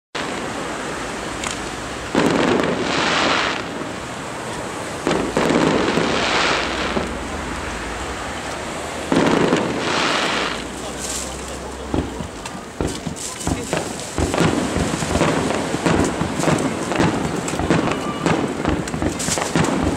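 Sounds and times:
high-pitched firework crackle: 0.2s - 19.9s
firework shells booming: 1.4s - 4.0s, 4.9s - 7.3s, 9.0s - 19.9s.

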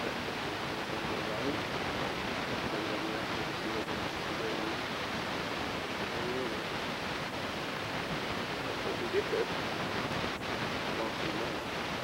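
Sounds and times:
steady background hiss: 0.0s - 12.0s
faint distant voice: 2.6s - 4.8s, 5.9s - 6.6s, 8.7s - 9.5s, 10.9s - 11.6s.

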